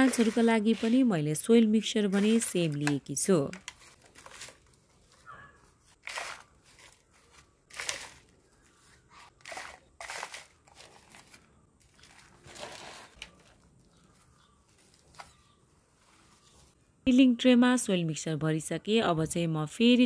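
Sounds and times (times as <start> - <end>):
soil rustling into plastic tray: 0.0 - 1.2, 5.8 - 15.4.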